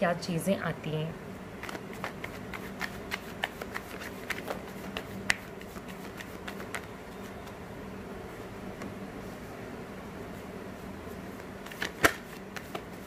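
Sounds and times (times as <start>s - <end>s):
cards being shuffled: 1.6s - 7.6s, 11.3s - 13.0s.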